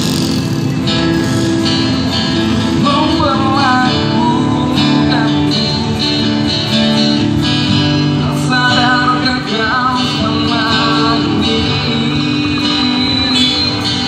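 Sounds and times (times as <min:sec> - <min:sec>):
acoustic guitar strumming: 0:00.0 - 0:14.0
man singing into a microphone: 0:02.7 - 0:06.9, 0:08.0 - 0:14.0.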